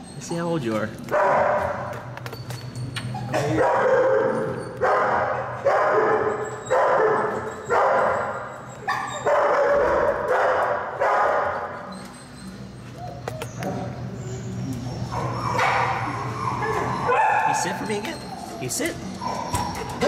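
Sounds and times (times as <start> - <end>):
dog barking: 1.1 - 1.9, 3.4 - 8.3, 8.9 - 11.7, 15.2 - 17.6.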